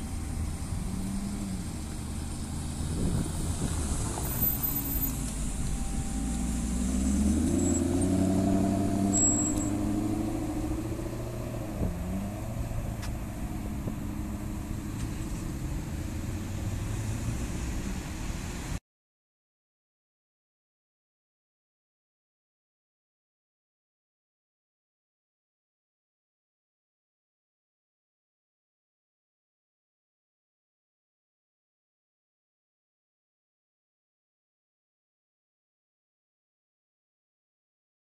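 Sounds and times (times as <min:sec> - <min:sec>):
car engine accelerating: 0:00.0 - 0:18.8
passing traffic: 0:00.0 - 0:18.8.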